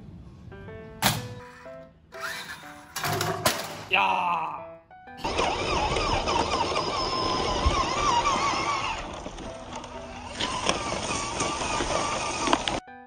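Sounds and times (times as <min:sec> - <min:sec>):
small electric motor whining: 0:02.2 - 0:02.7, 0:05.2 - 0:12.8.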